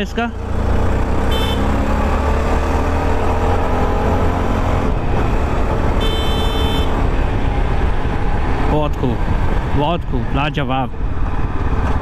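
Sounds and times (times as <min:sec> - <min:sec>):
high-pitched horn beep: 0:01.3 - 0:01.8, 0:05.9 - 0:07.0
wind rumble: 0:06.9 - 0:12.0.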